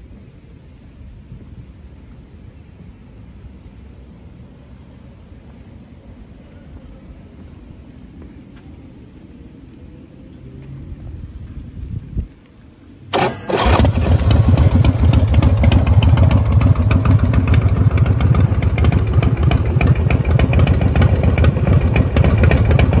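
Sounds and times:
starter motor whirring: 0:13.1 - 0:16.1
motorcycle engine running: 0:13.2 - 0:23.0.

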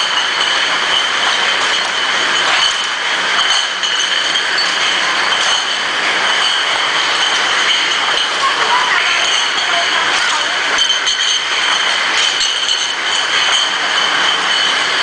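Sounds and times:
glass bottles clinking: 0:00.0 - 0:15.0
machine noise with high whine: 0:00.0 - 0:15.0.

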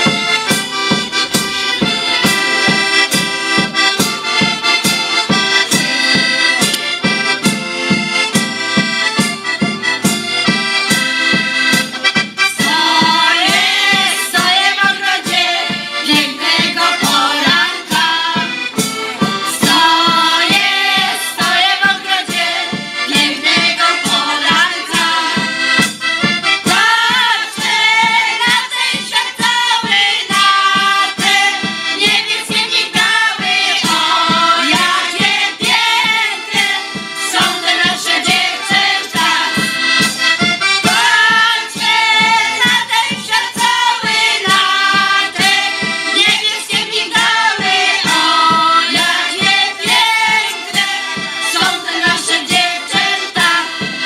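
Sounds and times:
piano accordion folk tune: 0:00.0 - 0:54.0
women's choir singing: 0:12.4 - 0:25.8, 0:26.4 - 0:54.0.

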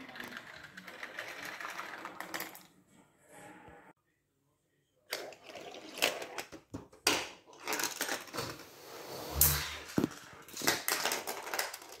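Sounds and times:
marbles rolling on plastic track: 0:00.0 - 0:02.7, 0:10.6 - 0:12.0.

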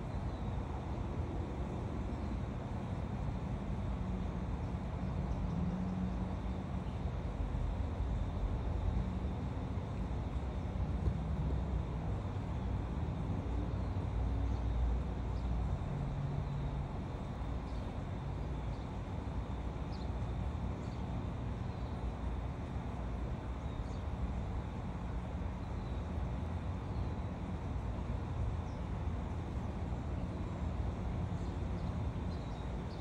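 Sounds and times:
low outdoor rumble: 0:00.0 - 0:33.0.

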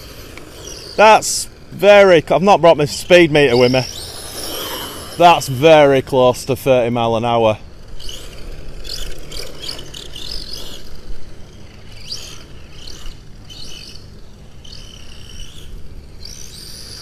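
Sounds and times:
rc car motor whining: 0:00.0 - 0:17.0.

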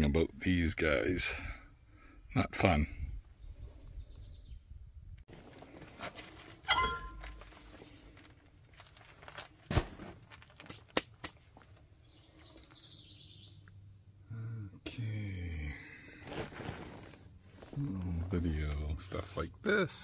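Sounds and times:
ringing metallic clink: 0:06.7 - 0:07.2.

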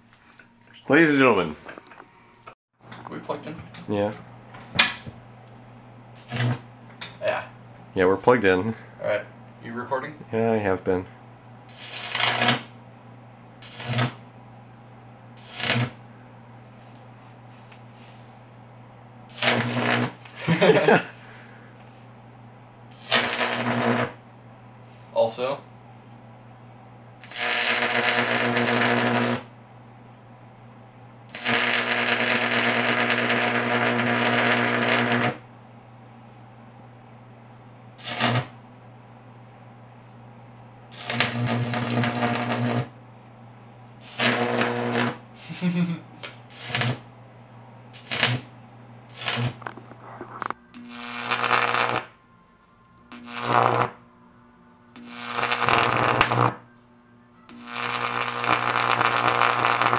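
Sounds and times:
faint transformer hum: 0:00.0 - 0:59.9
electric arc buzzing crackle: 0:06.1 - 0:08.6, 0:11.7 - 0:12.8, 0:13.6 - 0:14.4, 0:15.4 - 0:16.1, 0:19.3 - 0:21.2, 0:22.9 - 0:24.3, 0:27.2 - 0:29.6, 0:31.2 - 0:35.5, 0:37.9 - 0:38.6, 0:40.9 - 0:43.0, 0:43.9 - 0:47.2, 0:47.9 - 0:52.2, 0:53.1 - 0:54.0, 0:55.0 - 0:56.8, 0:57.5 - 0:59.9
low steady hum: 0:35.4 - 0:59.9.

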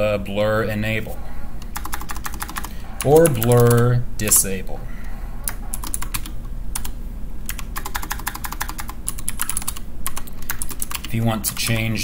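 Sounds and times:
computer keyboard typing: 0:01.6 - 0:04.4, 0:05.5 - 0:12.0.

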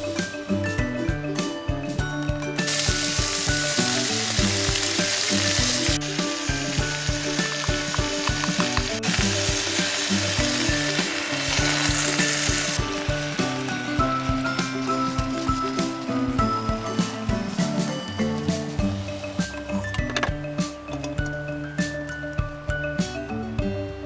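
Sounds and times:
background music with steady beat: 0:00.0 - 0:24.0
food sizzling in a pot: 0:02.6 - 0:19.5.

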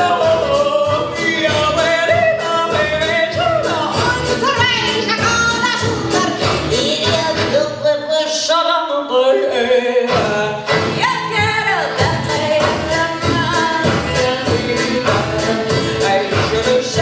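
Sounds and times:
person singing over a beat: 0:00.0 - 0:08.7, 0:09.4 - 0:17.0.

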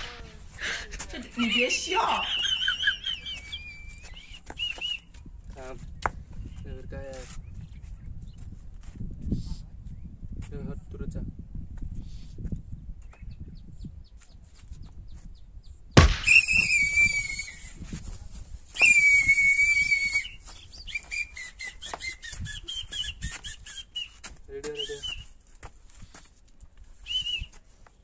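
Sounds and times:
sharp smack: 0:16.0 - 0:17.1
long high-pitched whistles: 0:16.2 - 0:17.8, 0:18.8 - 0:24.2
short warbling whistled notes: 0:16.2 - 0:17.8.

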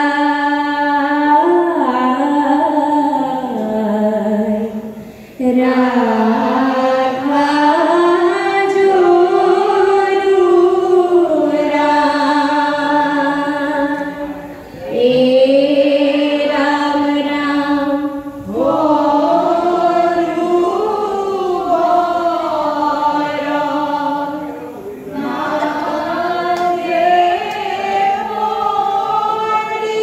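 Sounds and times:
group of voices chanting: 0:18.5 - 0:29.7.

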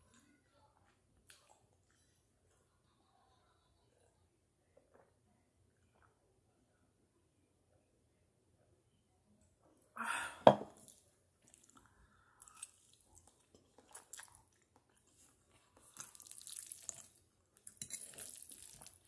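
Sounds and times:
wet chewing and slurping: 0:11.4 - 0:19.0.

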